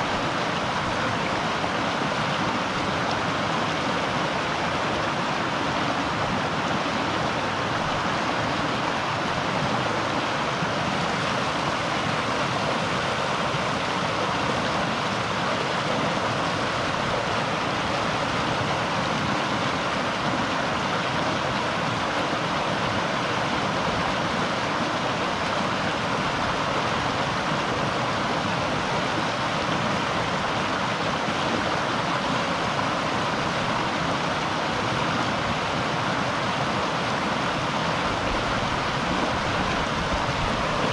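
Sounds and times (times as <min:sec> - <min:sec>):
river water flowing: 0:00.0 - 0:40.9.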